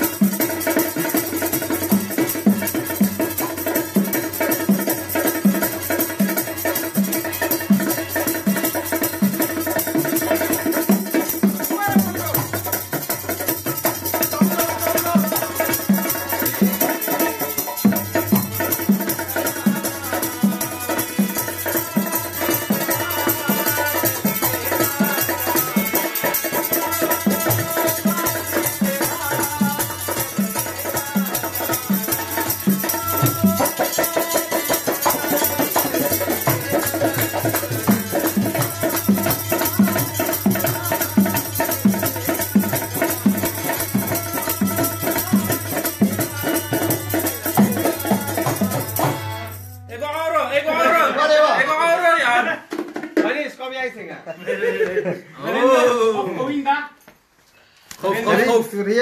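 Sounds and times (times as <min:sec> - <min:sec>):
bongo beat: 0:00.0 - 0:50.1, 0:52.6 - 0:53.4.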